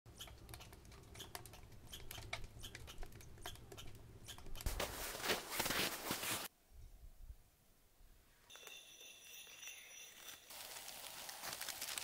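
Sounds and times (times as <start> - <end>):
rustling noise: 4.6 - 6.5
wood fire crackling: 10.5 - 12.0.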